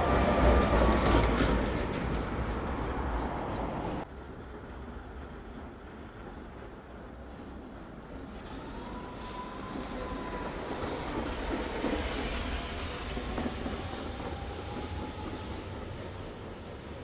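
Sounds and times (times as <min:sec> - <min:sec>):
tram wheels rumbling and clicking: 0:00.0 - 0:17.0.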